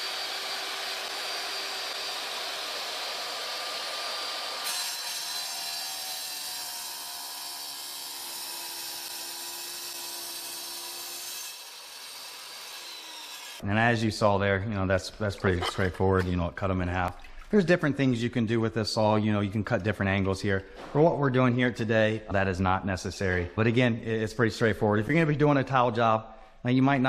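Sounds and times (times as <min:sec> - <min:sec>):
tile saw cutting tile: 0:00.0 - 0:13.6.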